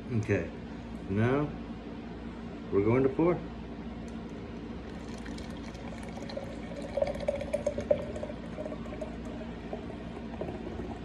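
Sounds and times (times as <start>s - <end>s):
cola pouring and splashing into glass: 4.8s - 11.0s.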